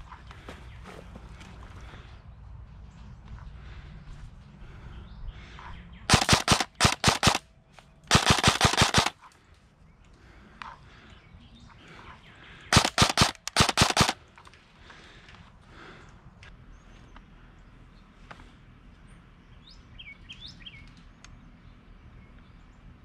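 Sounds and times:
airsoft rifle full-auto bursts: 6.1 - 7.4, 8.1 - 9.2, 12.7 - 14.2.

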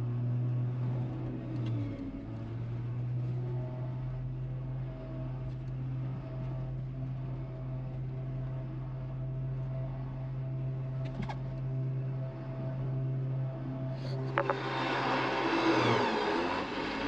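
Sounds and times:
engine idling low drone: 0.0 - 17.0
electric winch pulling: 13.5 - 17.0.

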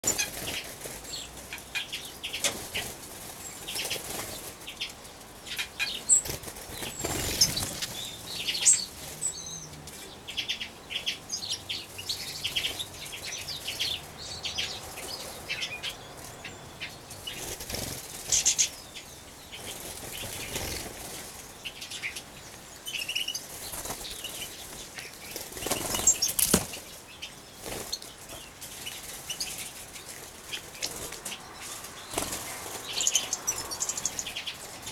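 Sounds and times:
finches fluttering wings: 6.1 - 8.1, 17.2 - 18.7, 19.6 - 21.4, 23.2 - 26.9, 27.6 - 34.9.

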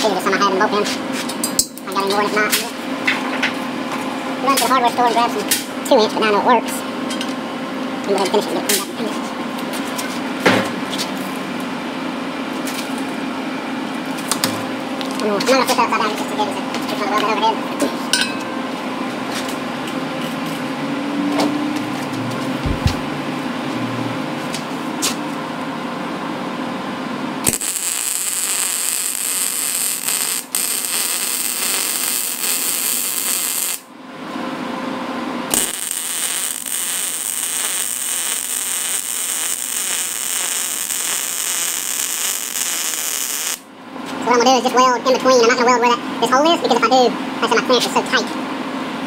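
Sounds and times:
steady hum: 0.0 - 49.0
welder arc crackling: 27.4 - 33.9, 35.5 - 43.7.

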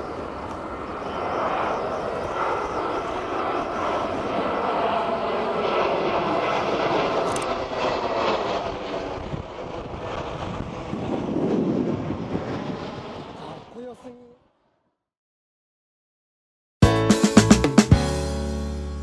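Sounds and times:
jet airliner passing overhead: 0.0 - 14.9.

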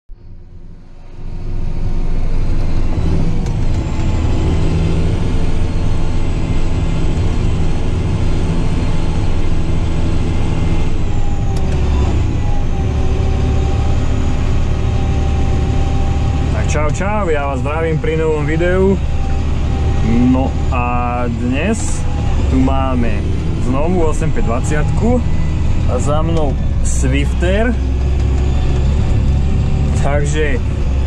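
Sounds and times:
tractor diesel engine running: 0.1 - 31.0.

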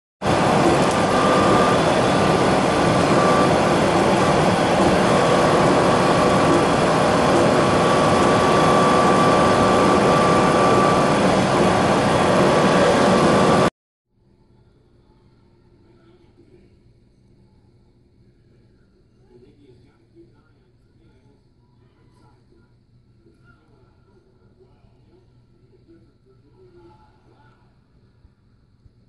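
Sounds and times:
truck engine running in cab: 0.2 - 13.7
faint steady whine: 0.2 - 29.0.

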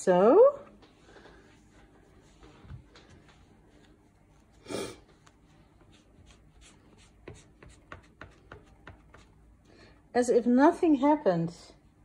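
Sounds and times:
hands rubbing paper: 1.6 - 9.4.

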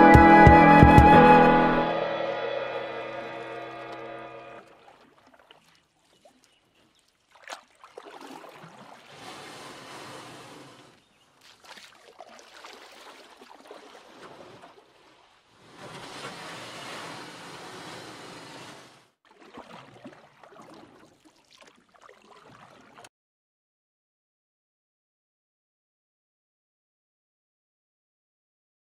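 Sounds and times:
toneless rushing noise: 0.0 - 4.6.

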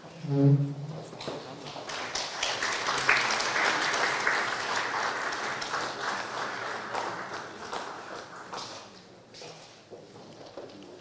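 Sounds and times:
audience applauding: 1.5 - 8.9.

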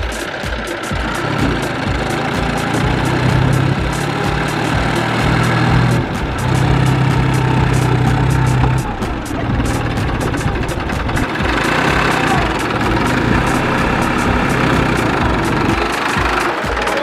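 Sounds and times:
tractor diesel engine under load: 0.9 - 17.0.

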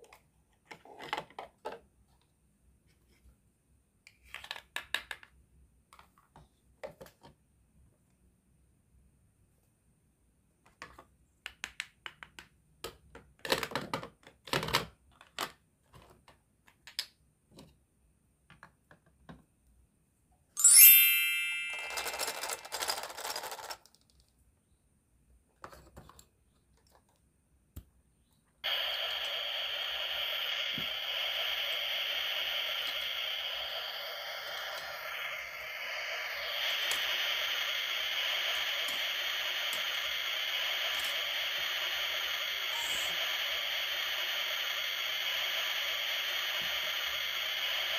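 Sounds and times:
toy grill sizzling hiss: 20.6 - 23.8, 28.6 - 47.9
toy pieces clicking and tapping: 21.8 - 24.2.

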